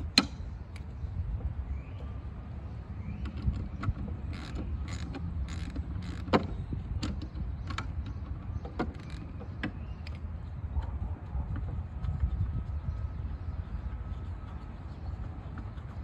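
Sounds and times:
sharp metal clicks and knocks: 0:00.0 - 0:00.9, 0:03.1 - 0:10.3
steady low rumble: 0:00.0 - 0:16.0.

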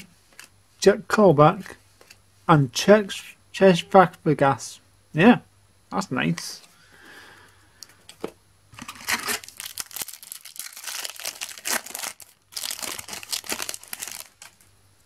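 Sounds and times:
wrapper being torn and crinkled: 0:08.8 - 0:14.7.

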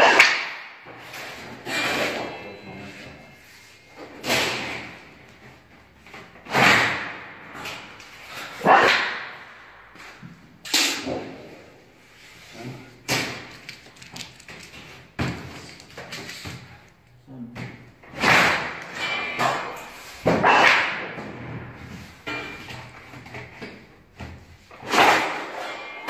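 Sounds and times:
sheet metal rattling: 0:18.0 - 0:23.0
metal shear clanks: 0:18.3 - 0:20.2, 0:22.2 - 0:23.0.

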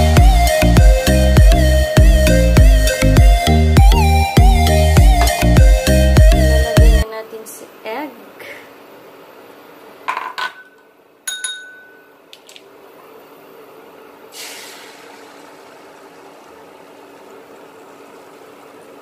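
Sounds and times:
induction cooktop hum: 0:01.4 - 0:19.0
ringing clinks: 0:10.4 - 0:12.2.

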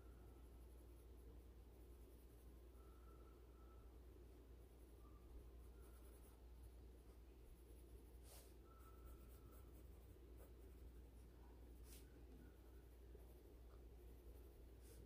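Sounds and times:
low steady hum: 0:00.0 - 0:15.0
pencil scratching on paper: 0:07.4 - 0:15.0.

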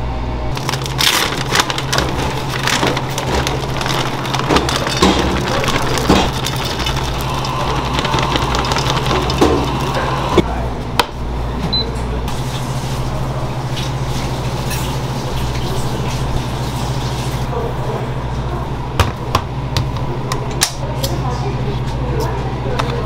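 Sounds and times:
machine humming: 0:00.0 - 0:10.5.

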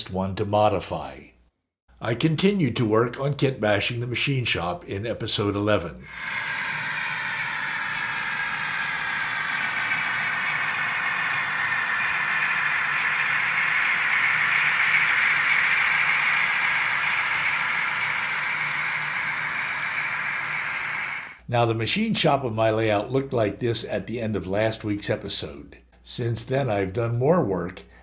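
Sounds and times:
model train rolling rattle: 0:06.1 - 0:21.4.

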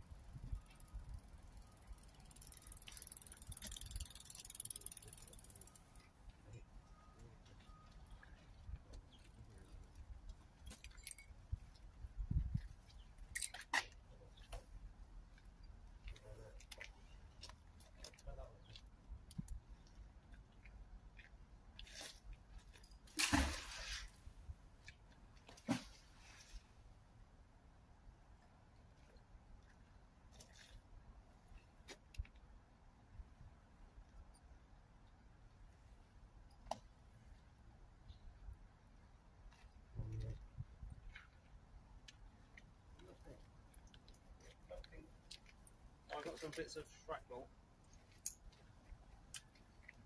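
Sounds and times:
bicycle freewheel ticking: 0:00.8 - 0:05.7
magnet splashing into water: 0:23.1 - 0:24.1.

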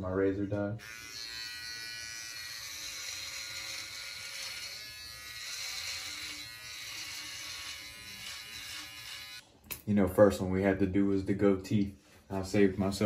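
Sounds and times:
electric beard trimmer buzzing: 0:00.8 - 0:09.4.

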